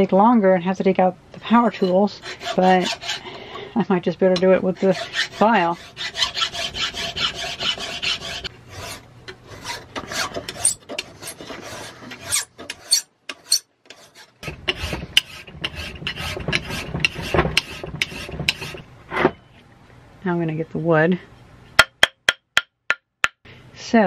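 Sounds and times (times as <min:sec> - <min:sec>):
hand file rasping on metal: 0:01.7 - 0:03.4, 0:04.6 - 0:18.8.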